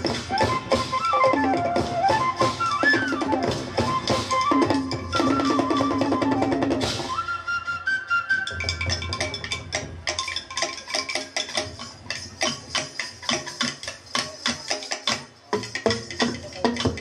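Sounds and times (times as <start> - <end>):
drums struck with sticks: 0.0 - 6.0, 8.5 - 17.0
flute-like melody: 0.0 - 9.6.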